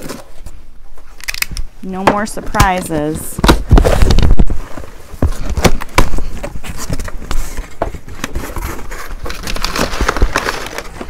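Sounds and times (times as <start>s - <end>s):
cardboard box being opened: 0.0s - 0.6s, 3.0s - 11.0s.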